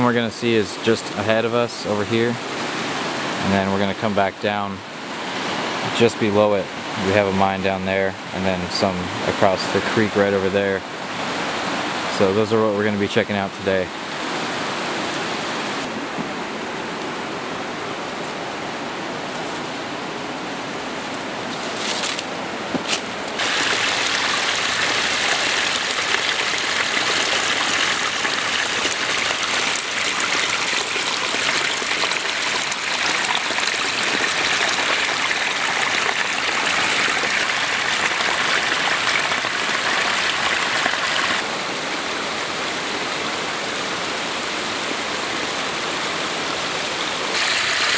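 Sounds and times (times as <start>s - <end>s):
forest creek rushing: 0.0s - 47.9s
water spilling over rocks: 23.4s - 41.5s, 47.3s - 47.9s.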